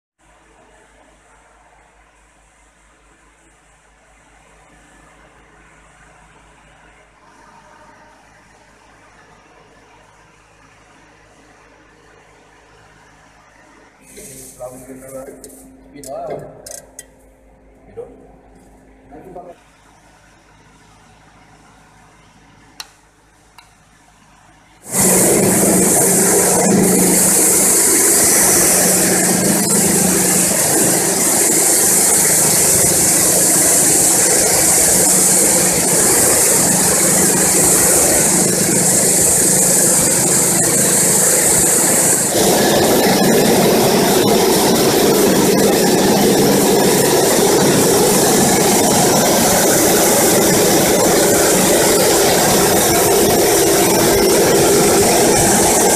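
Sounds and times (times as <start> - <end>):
sieving machine running: 24.2 - 55.9.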